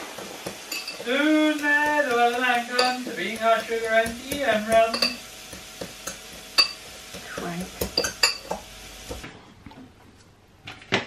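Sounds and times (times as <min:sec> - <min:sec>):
metal utensils clinking on pots: 0:00.4 - 0:05.2, 0:06.0 - 0:08.6.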